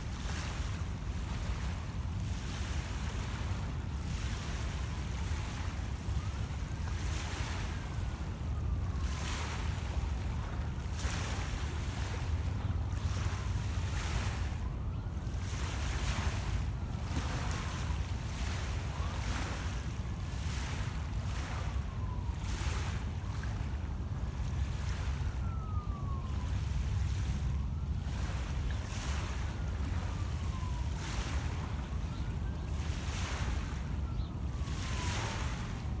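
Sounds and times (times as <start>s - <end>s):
waves lapping on pebble shore: 0.0s - 5.8s, 7.0s - 8.0s, 9.1s - 14.6s, 15.4s - 23.0s, 28.1s - 30.2s, 30.9s - 32.0s, 32.8s - 33.8s, 34.7s - 35.8s
wind rumbling on microphone: 0.0s - 36.0s.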